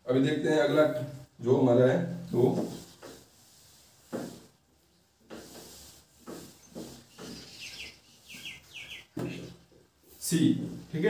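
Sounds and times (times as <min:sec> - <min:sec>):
eraser rubbing whiteboard: 0:02.3 - 0:08.8
bird chirping: 0:06.6 - 0:09.6.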